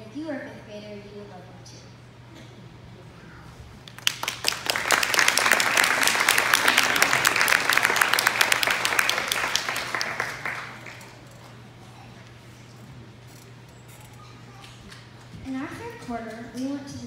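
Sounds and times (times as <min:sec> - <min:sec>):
audience applauding: 0:03.9 - 0:11.4.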